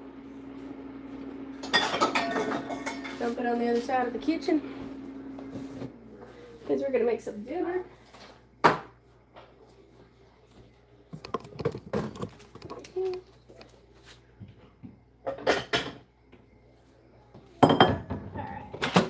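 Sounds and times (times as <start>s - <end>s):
kitchen items clattering on countertop: 1.6s - 3.4s, 11.2s - 13.2s, 15.2s - 16.0s, 17.6s - 19.0s.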